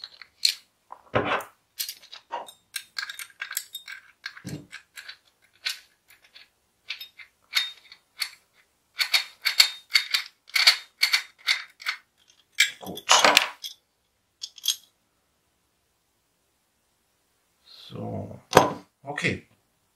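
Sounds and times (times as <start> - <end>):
metal parts clicking and clinking: 0.0 - 13.8, 14.4 - 14.9.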